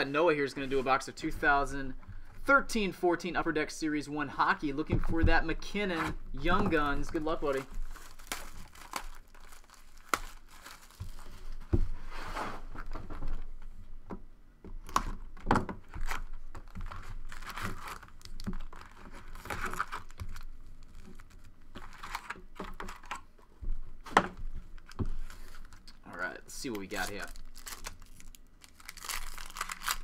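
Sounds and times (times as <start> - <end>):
foil packs rustling and clicking: 6.5 - 11.6, 15.9 - 23.2, 26.6 - 30.0
plastic wrap tearing and crinkling: 6.8 - 11.6, 15.8 - 23.2, 26.6 - 30.0.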